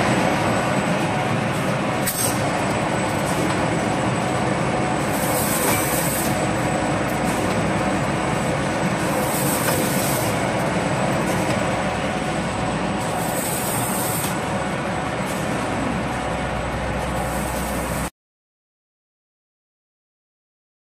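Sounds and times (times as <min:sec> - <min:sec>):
printing machine running: 0:00.0 - 0:18.1.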